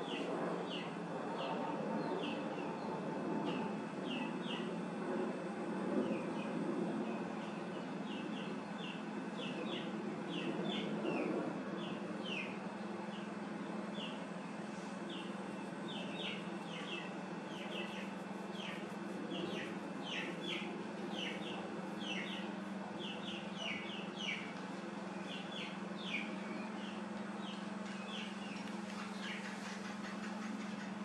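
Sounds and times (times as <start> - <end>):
steady low hum: 0.0 - 31.0
birds chirping: 11.8 - 14.3, 14.9 - 31.0.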